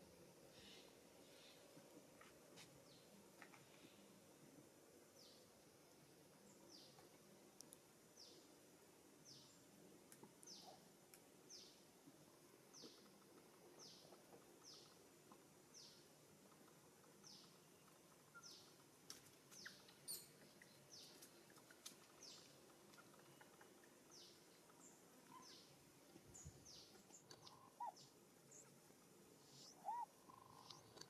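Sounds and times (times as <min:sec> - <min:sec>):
bird chirping: 0:10.4 - 0:10.8, 0:13.8 - 0:15.1, 0:15.7 - 0:18.8, 0:19.5 - 0:28.8, 0:29.4 - 0:31.0.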